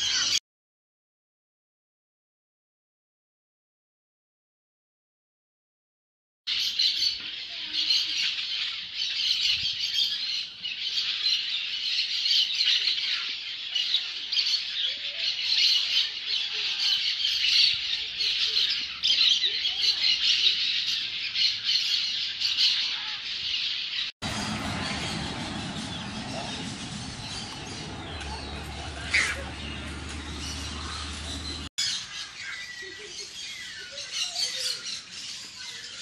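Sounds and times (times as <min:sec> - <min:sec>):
parakeets chattering and squawking: 0:09.9 - 0:36.0.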